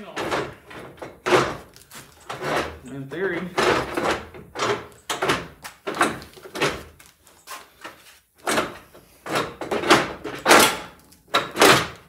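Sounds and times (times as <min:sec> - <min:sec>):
bumper scraping and knocking: 0:00.0 - 0:07.0.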